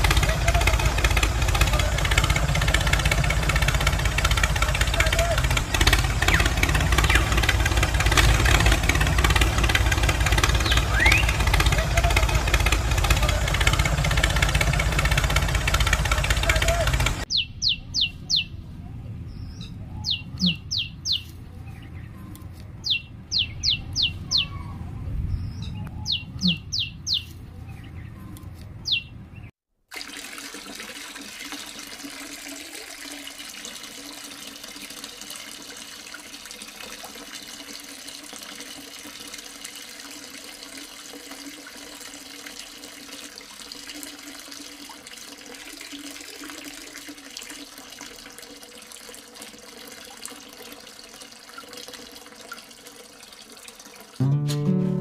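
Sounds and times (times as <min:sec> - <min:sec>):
water pouring into soil: 0:00.0 - 0:17.2, 0:29.9 - 0:54.2
pump hum: 0:00.0 - 0:17.4
birds chirping: 0:04.7 - 0:08.6, 0:10.0 - 0:13.6, 0:16.2 - 0:29.5.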